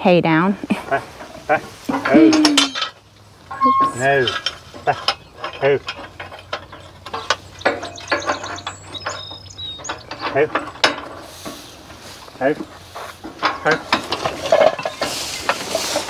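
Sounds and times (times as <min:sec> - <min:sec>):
metal chain clinks and rattles: 0:01.9 - 0:11.2.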